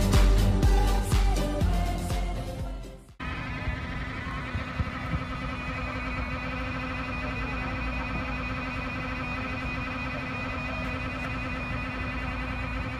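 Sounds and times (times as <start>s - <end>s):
constant hum: 0.0s - 12.9s
subway car rumble: 3.2s - 9.7s.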